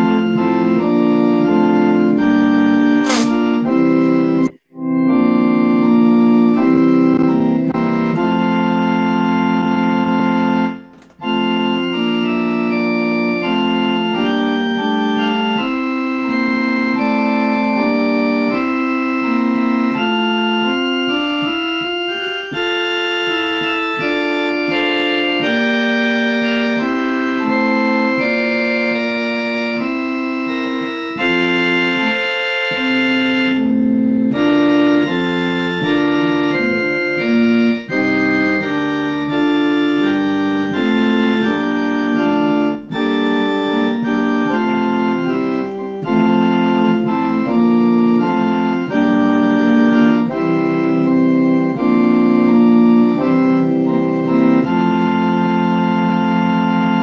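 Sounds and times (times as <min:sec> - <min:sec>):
organ playing hymn chords: 0:00.0 - 0:57.0.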